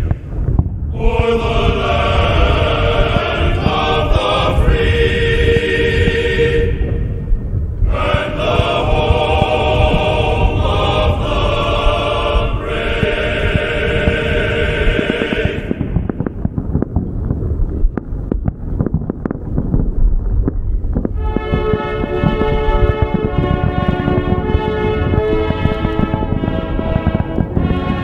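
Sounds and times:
choir singing held chords: 0:00.0 - 0:16.5, 0:21.2 - 0:28.0
low rumble: 0:00.0 - 0:28.0
dull firework thumps: 0:14.9 - 0:28.0.

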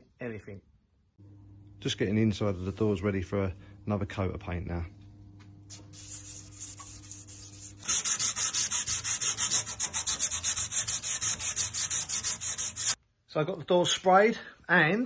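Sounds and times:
scouring pad scrubbing metal: 0:06.0 - 0:13.0.

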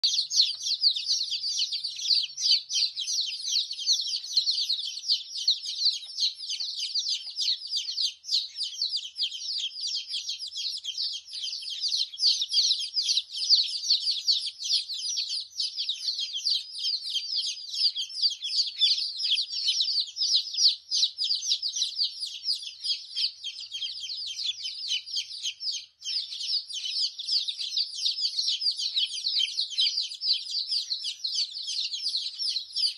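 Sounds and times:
bird chicks chattering: 0:00.0 - 0:32.9.

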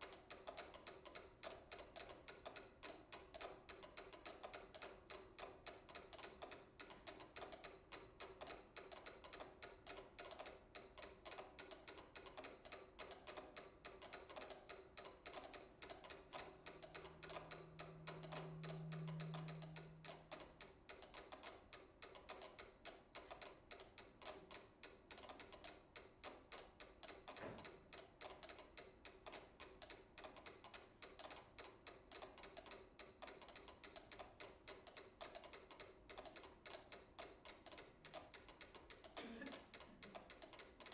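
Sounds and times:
metronomes ticking: 0:10.2 - 0:24.4
low steady tone: 0:16.7 - 0:20.7.

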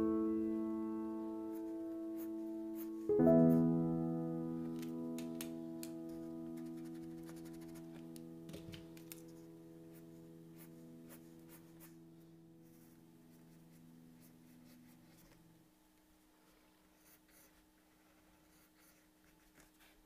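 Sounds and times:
background music: 0:00.0 - 0:15.3
pencil scratching on paper: 0:06.2 - 0:08.0, 0:09.2 - 0:12.0, 0:12.6 - 0:15.4, 0:17.0 - 0:20.0.

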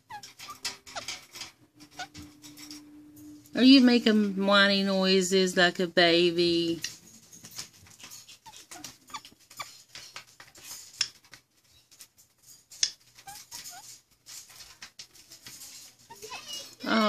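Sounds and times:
parakeet squeaking: 0:00.0 - 0:02.7, 0:08.2 - 0:09.9, 0:13.2 - 0:14.0.

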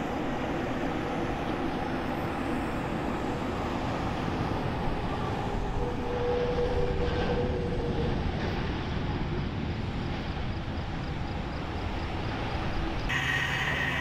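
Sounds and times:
jet engines roaring: 0:13.1 - 0:14.0
steady tone: 0:13.1 - 0:14.0.

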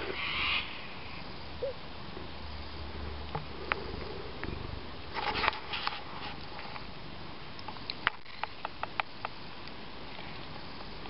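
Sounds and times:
low steady buzz: 0:00.0 - 0:05.2.

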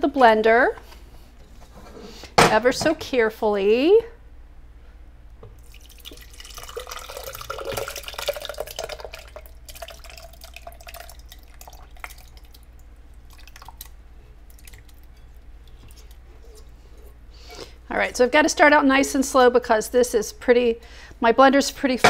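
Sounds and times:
liquid pouring and plopping: 0:05.6 - 0:16.2.

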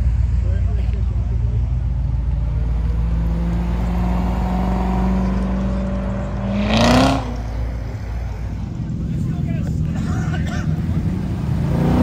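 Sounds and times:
car engine accelerating: 0:00.0 - 0:10.0, 0:10.7 - 0:12.0.

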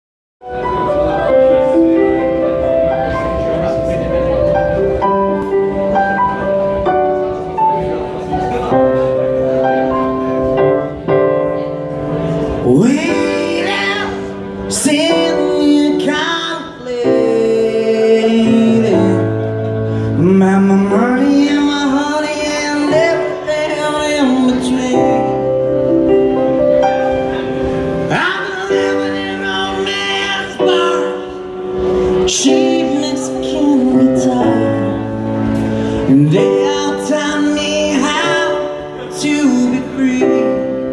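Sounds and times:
keyboard chords: 0:00.4 - 0:40.9
person singing: 0:12.4 - 0:26.1, 0:27.4 - 0:40.9.

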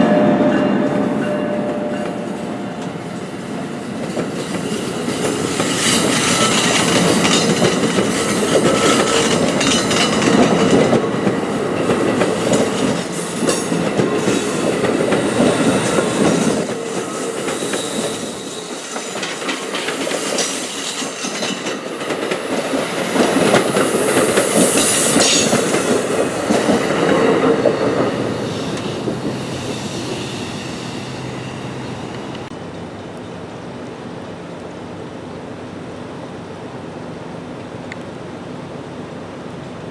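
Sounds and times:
train wheels clattering over rail joints: 0:04.0 - 0:29.4.

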